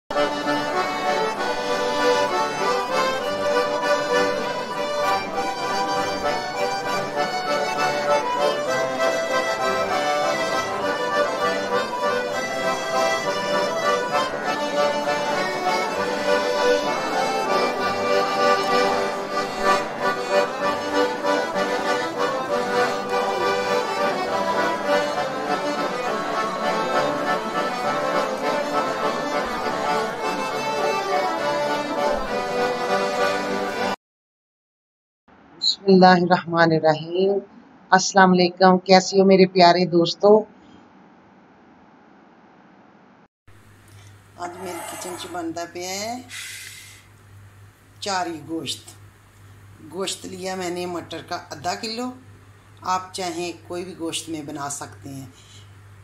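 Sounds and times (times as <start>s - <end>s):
instrumental music with sustained notes: 0.1s - 33.9s.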